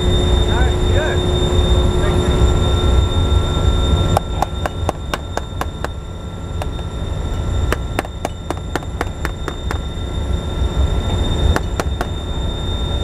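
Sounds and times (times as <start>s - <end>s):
compressor rumbling: 0.0s - 13.0s
high whine: 0.0s - 13.0s
sharp metallic clicks: 7.7s - 9.8s.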